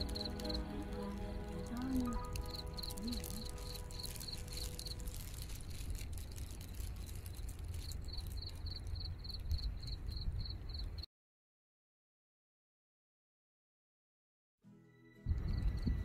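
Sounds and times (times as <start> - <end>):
steady low rumble: 0.0 - 10.8
insect chirping: 0.0 - 11.0.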